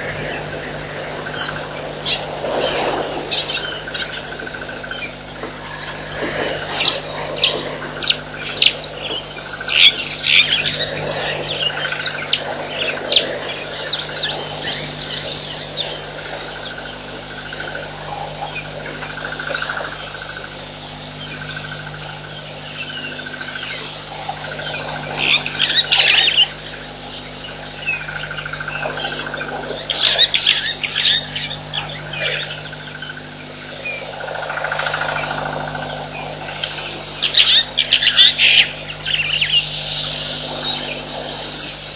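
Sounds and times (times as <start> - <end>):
small birds chirping: 0.0 - 41.9
steady low hum: 0.0 - 41.9.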